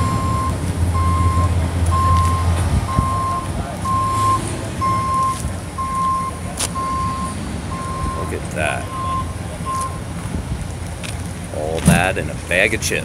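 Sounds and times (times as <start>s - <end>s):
reversing alarm beeping: 0.0s - 10.1s.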